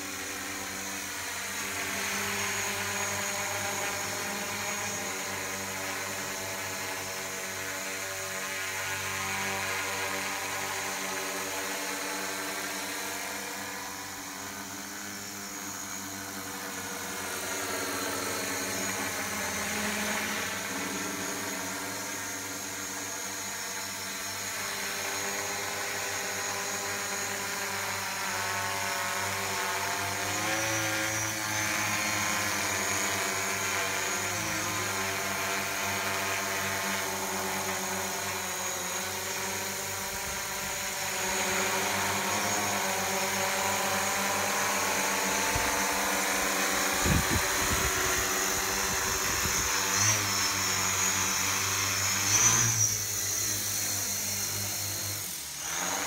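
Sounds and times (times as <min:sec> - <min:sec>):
drone propellers droning: 0:00.0 - 0:56.0.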